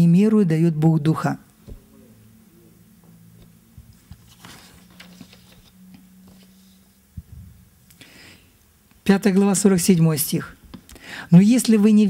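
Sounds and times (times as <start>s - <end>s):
low steady hum: 0.0s - 12.0s
paper pages rustling and turning: 3.9s - 7.0s.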